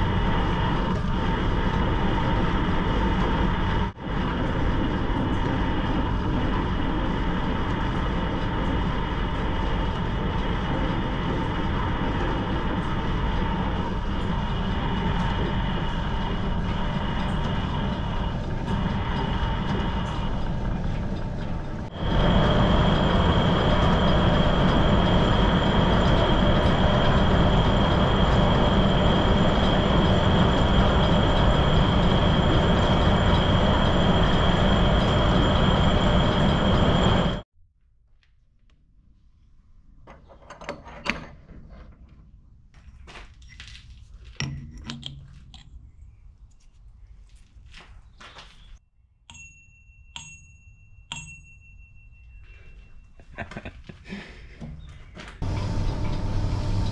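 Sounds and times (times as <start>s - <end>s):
lathe running: 0.0s - 37.4s, 55.4s - 56.9s
steady high whine: 0.0s - 37.5s, 55.2s - 56.9s.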